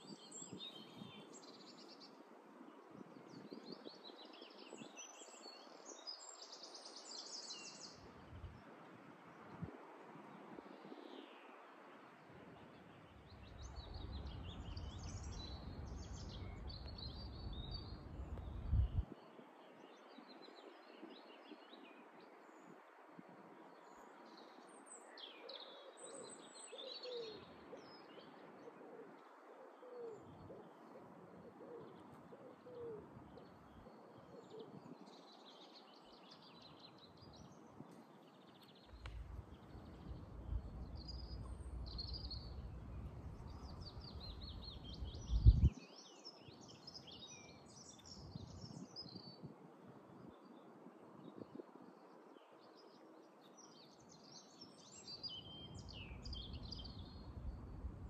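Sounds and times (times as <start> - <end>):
low cooing call: 28.7 - 33.1.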